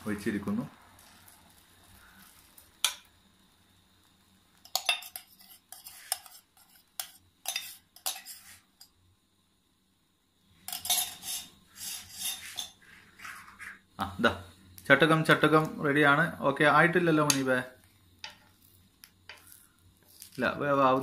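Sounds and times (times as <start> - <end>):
metal spoon clinking on steel: 4.6 - 8.9, 10.7 - 11.4.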